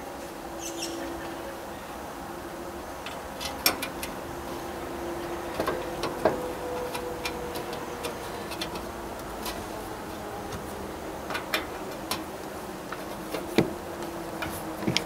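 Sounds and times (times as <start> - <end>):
light clicks and taps of parts: 3.0 - 4.2, 5.4 - 15.0.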